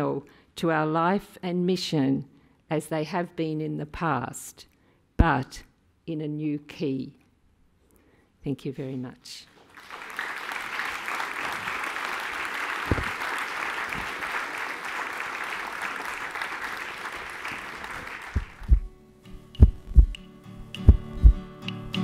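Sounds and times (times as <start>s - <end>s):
audience applauding: 9.7s - 18.8s
deep drum thumps: 12.9s - 13.1s, 18.4s - 18.9s, 19.6s - 20.2s, 20.8s - 21.4s
music with held notes: 18.9s - 22.0s.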